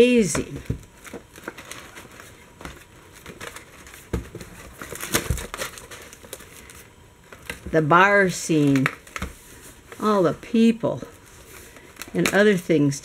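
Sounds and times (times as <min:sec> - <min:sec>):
paper rustling and crinkling: 0:00.4 - 0:07.8.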